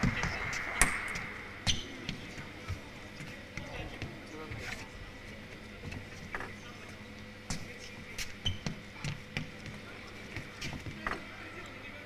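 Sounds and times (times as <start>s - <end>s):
table tennis balls bouncing: 0.0s - 2.9s
faint hall hum: 0.0s - 12.0s.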